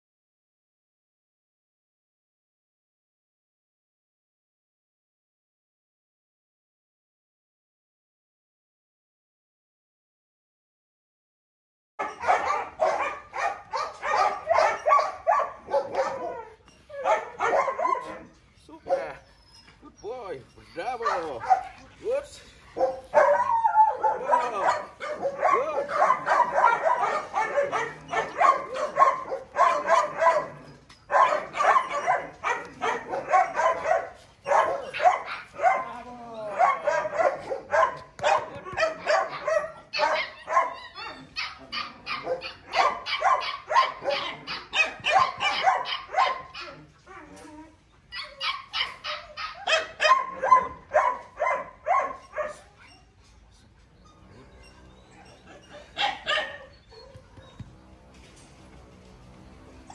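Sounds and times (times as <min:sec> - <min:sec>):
dog barking and yipping: 0:12.0 - 0:19.8, 0:20.6 - 0:47.5, 0:48.1 - 0:53.2, 0:54.1 - 0:57.9.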